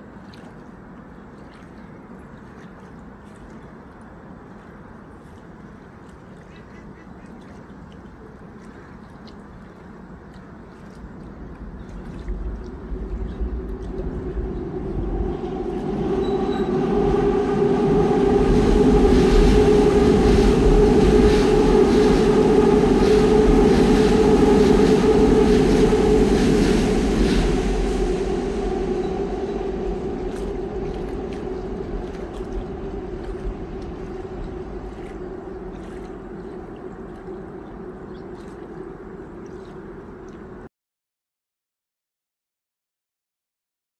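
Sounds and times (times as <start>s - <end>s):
train passing rumble: 9.7s - 40.2s
steady hum: 11.3s - 40.2s.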